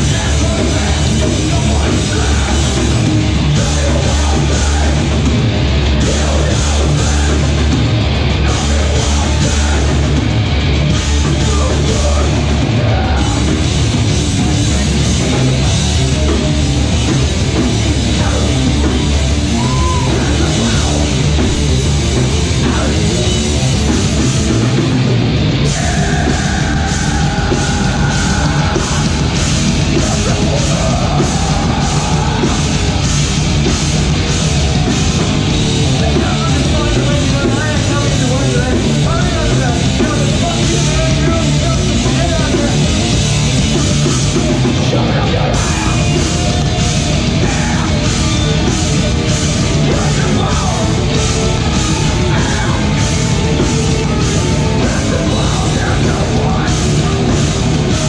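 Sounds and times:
metalcore band playing: 0.0 - 58.0
vocalist screaming: 18.8 - 21.0, 25.6 - 29.4.

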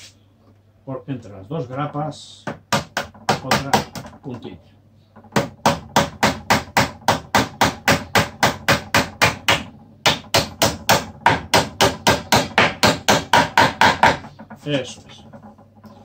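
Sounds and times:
hammer tapping nail into wood: 2.5 - 4.2.

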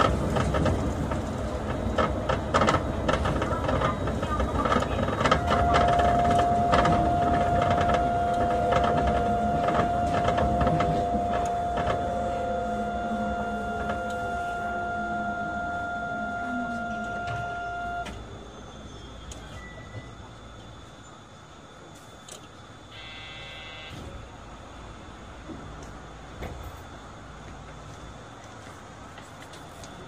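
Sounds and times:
train drive whine: 0.0 - 30.0
electrical tones: 1.7 - 20.2, 22.9 - 24.4.

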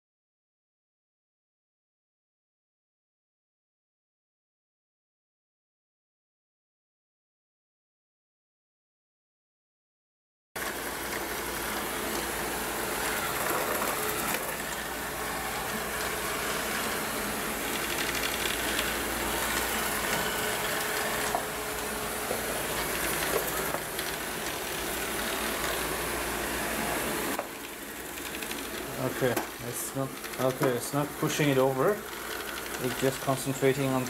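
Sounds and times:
robot vacuum cleaner whirring: 10.6 - 34.0.

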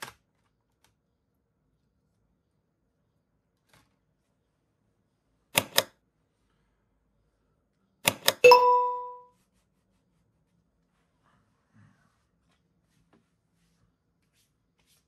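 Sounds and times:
short clear ding: 8.5 - 9.2.

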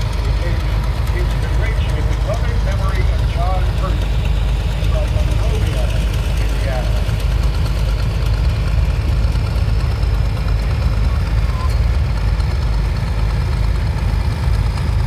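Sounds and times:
tractor engine running: 0.0 - 15.0.

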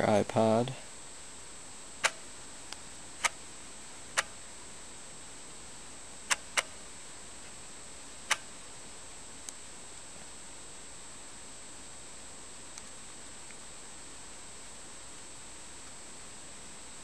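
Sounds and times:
faint high whine: 0.0 - 17.0
steady hiss: 0.0 - 17.0
sharp clicks: 2.0 - 3.4, 4.1 - 4.4, 6.3 - 6.8, 8.3 - 8.5.

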